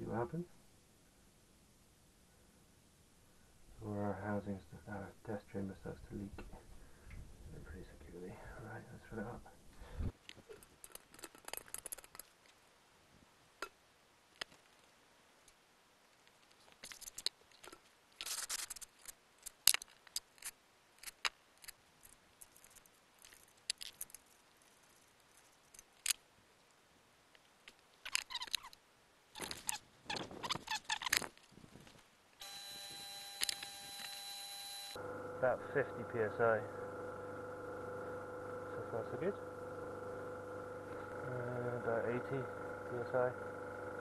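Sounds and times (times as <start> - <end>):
steady hum: 32.4 - 44.0.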